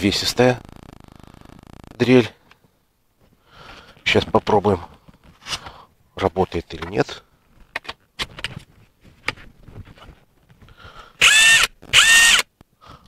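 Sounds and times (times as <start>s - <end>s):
cordless drill motor whine: 11.2s - 12.5s.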